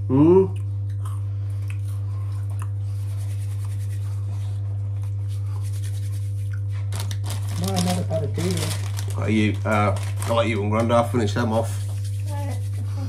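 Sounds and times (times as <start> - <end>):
steady low hum: 0.0 - 13.0
crunching of snacks being chewed: 6.5 - 11.0.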